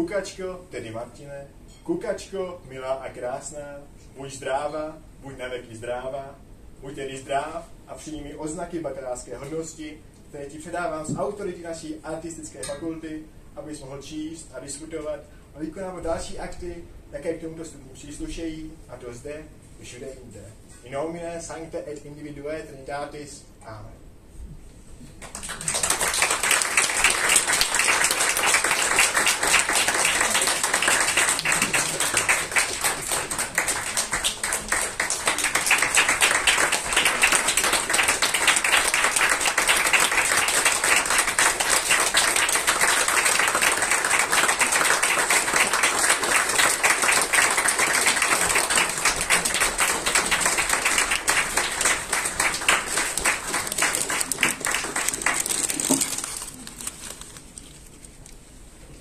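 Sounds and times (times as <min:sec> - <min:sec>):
audience applauding: 0:25.2 - 0:57.3.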